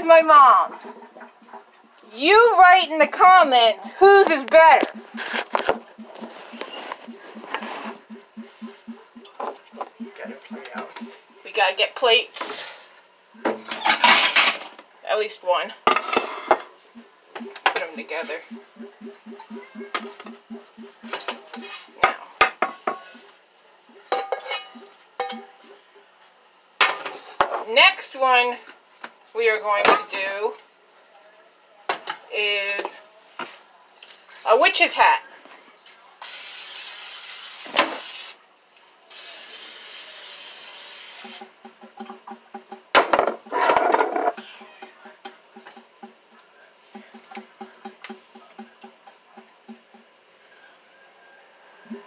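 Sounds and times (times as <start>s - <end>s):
low pulsing sound: 4.8s - 11.6s, 16.9s - 21.6s
plates and utensils clinking: 24.1s - 25.6s
aerosol cooking spray hissing: 36.2s - 38.4s, 39.1s - 41.4s.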